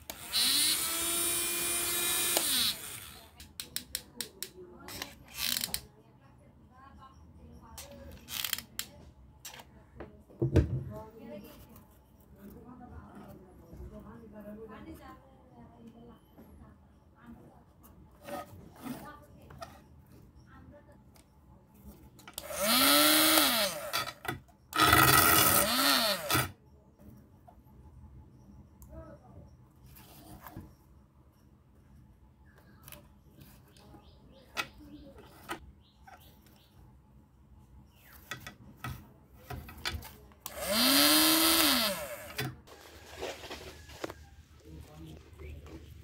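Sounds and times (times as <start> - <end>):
small electric motor whirring: 0.0 - 3.4, 22.4 - 24.2, 24.8 - 26.5, 40.5 - 42.5.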